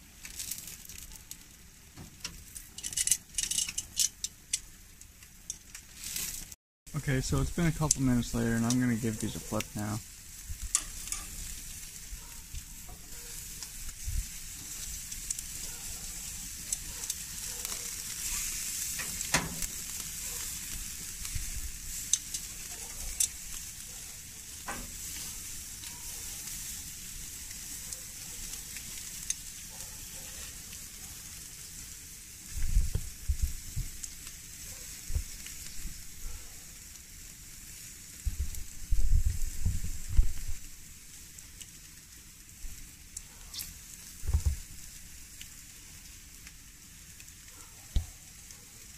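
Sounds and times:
meat sizzling on grill: 0.0 - 48.9
tongs clicking on grate: 2.0 - 4.7, 7.9 - 9.7, 10.6 - 11.5, 14.6 - 20.5, 22.0 - 23.8.

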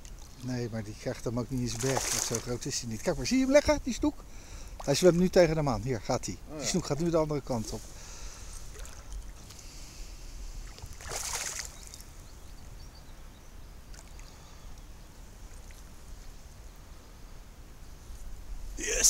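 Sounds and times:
fish splashing: 1.7 - 2.5, 10.7 - 12.0.

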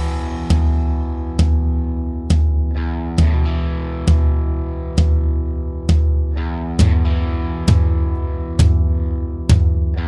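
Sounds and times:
heavy steady bass: 0.0 - 10.0.

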